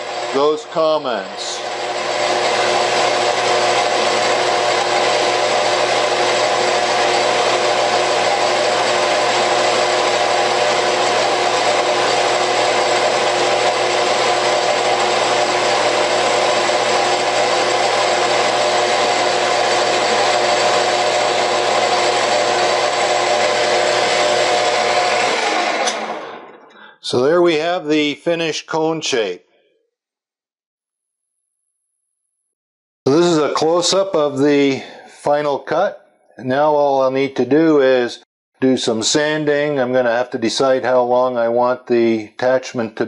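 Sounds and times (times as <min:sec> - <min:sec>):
metal lathe whining: 0:00.0 - 0:27.4.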